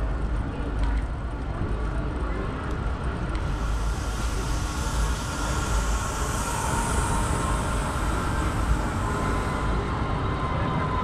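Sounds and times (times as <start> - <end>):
tram rumbling past: 1.4 - 11.0
thin high whine: 3.4 - 11.0.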